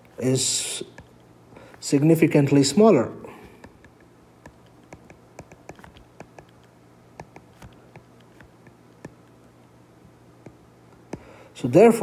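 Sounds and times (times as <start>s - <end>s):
stylus tapping on tablet screen: 0.9s - 1.8s, 3.5s - 11.3s.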